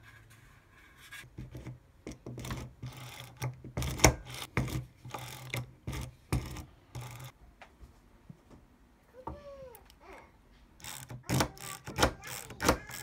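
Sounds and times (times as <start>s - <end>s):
ratchet screwdriver strokes: 10.8s - 13.0s.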